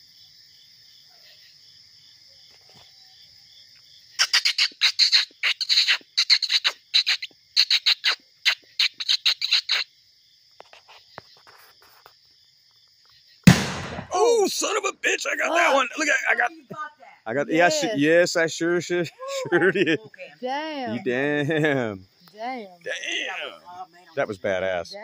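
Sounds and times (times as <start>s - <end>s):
crickets chirping: 0.0s - 25.0s
bonfire crackling and sputtering: 13.5s - 16.3s.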